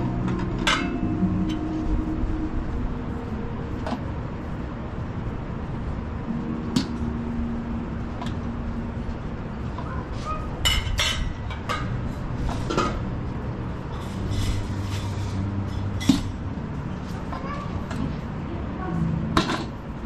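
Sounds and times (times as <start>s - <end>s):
steady background noise: 0.0s - 20.0s.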